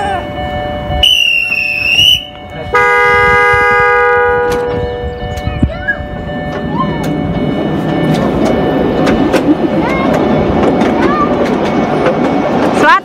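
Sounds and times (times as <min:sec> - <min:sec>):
mini train horn chord: 0:00.0 - 0:05.2
train rumbling along track: 0:00.0 - 0:13.0
train wheels clicking: 0:04.4 - 0:13.0.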